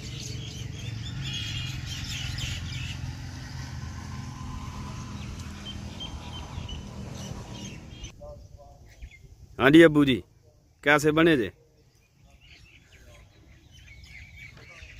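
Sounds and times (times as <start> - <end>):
low engine drone: 0.0 - 8.1
birds chirping: 0.0 - 14.9.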